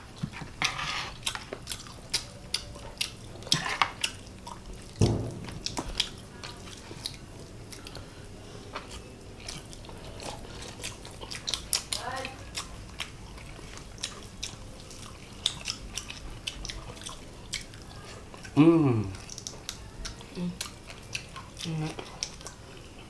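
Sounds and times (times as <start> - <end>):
chewing and lip smacks: 1.1 - 5.0, 5.6 - 23.0
dull thump: 5.0 - 6.0.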